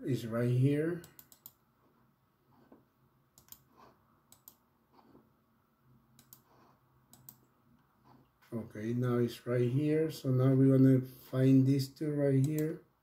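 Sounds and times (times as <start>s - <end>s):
computer mouse clicks: 1.0s - 1.6s, 2.6s - 5.2s, 6.2s - 7.5s, 12.4s - 12.8s.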